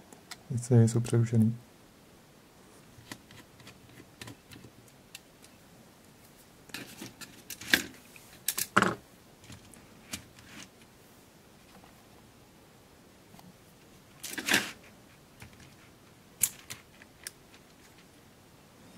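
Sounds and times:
plastic parts clicking and rustling: 0:06.7 - 0:10.7, 0:14.2 - 0:14.8, 0:16.4 - 0:18.1.

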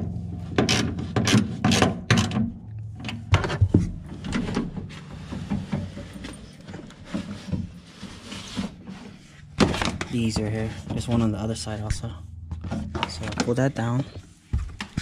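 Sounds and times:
soft scraping: 0:03.2 - 0:14.7.

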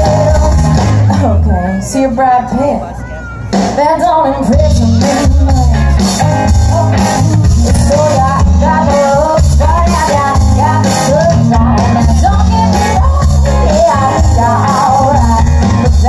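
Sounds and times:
woman singing: 0:00.0 - 0:02.9, 0:03.7 - 0:16.0
live rock band playing: 0:00.0 - 0:16.0.

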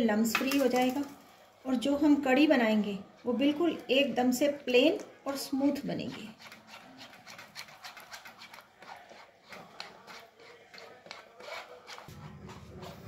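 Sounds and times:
spoon scraping a mesh strainer: 0:05.4 - 0:13.0.

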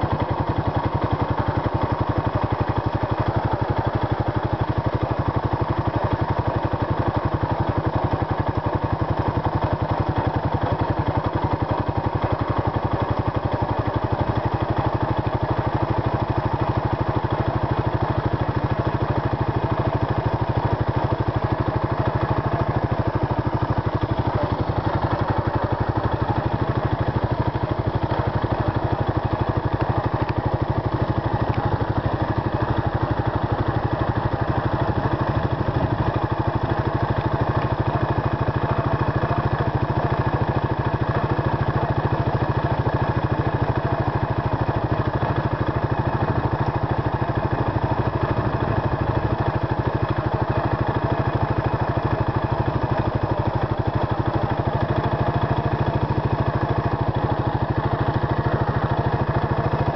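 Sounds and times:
motorcycle engine cruising: 0:17.4 - 0:59.9.

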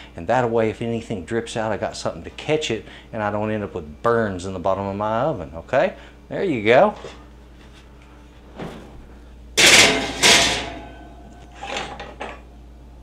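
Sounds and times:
metal pan clattering on rack: 0:09.6 - 0:12.4.

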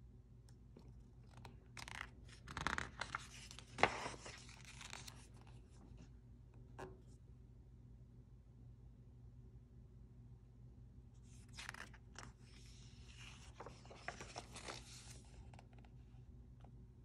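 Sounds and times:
book page turning: 0:01.0 - 0:05.8, 0:11.2 - 0:15.9.

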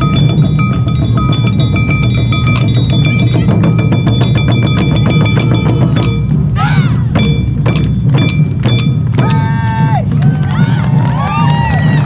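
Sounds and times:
high ringing notes: 0:00.0 - 0:06.4, 0:07.2 - 0:09.6
taiko drums thudding: 0:00.0 - 0:12.0.

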